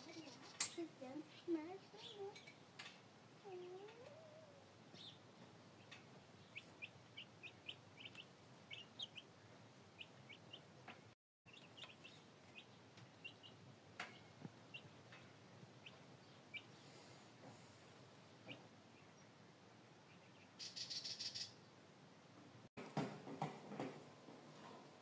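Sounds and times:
chicks peeping: 3.5s - 17.2s, 20.0s - 21.5s.

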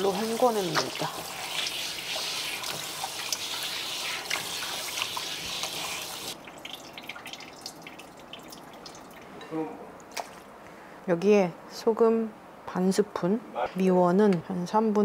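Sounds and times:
meat rubbed by hand in water: 0.0s - 6.4s
water dripping: 0.0s - 9.3s.

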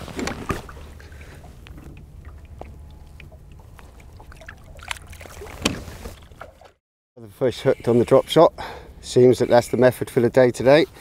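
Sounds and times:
water splashes and drips: 0.2s - 6.8s.

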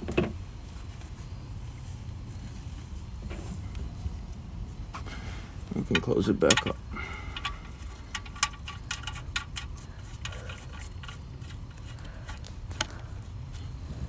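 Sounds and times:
low background rumble: 0.0s - 14.0s
metallic clicking of drain plug: 5.9s - 11.2s.

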